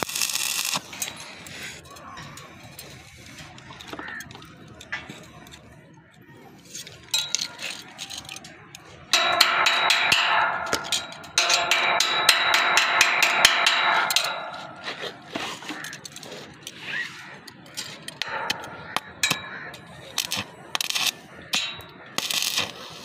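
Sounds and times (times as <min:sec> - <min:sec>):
hammer striking metal pipe: 0:09.1 - 0:16.0, 0:18.2 - 0:22.7.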